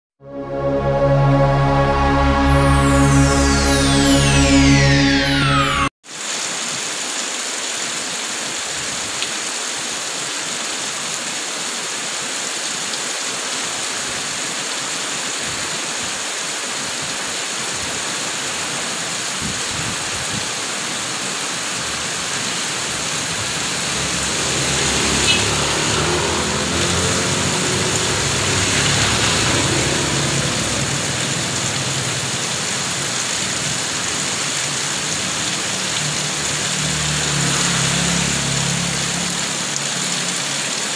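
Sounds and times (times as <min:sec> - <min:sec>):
heavy rain hissing: 0:00.7 - 0:40.9
water pouring off roof splashing: 0:16.6 - 0:40.9.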